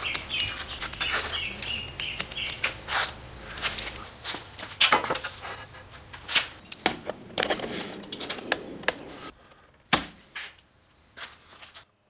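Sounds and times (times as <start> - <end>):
knocks and scrapes of wood and metal: 2.1 - 10.6.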